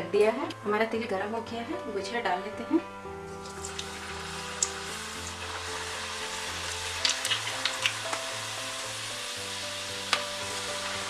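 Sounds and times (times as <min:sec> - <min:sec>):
pastries sizzling in hot oil: 0:03.3 - 0:11.0
sharp crackling pops: 0:03.4 - 0:05.6, 0:06.7 - 0:08.4, 0:09.9 - 0:10.6.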